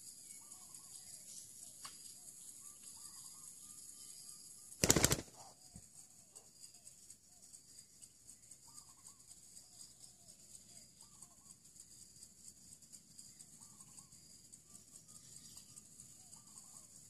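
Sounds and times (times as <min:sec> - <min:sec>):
flurry of rapid beats: 0:04.8 - 0:05.3
doves cooing: 0:04.8 - 0:05.5.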